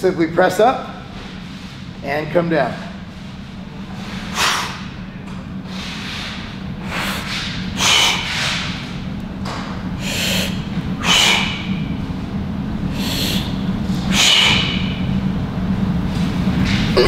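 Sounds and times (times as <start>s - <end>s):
steady low hum: 0.0s - 17.0s
man breathing hard: 4.1s - 5.0s, 5.7s - 8.9s, 10.0s - 11.9s, 12.8s - 15.1s.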